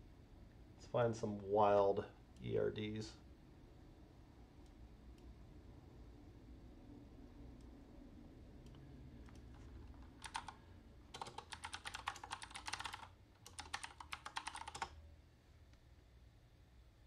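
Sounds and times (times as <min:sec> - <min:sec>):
computer keyboard typing: 0:08.7 - 0:15.0.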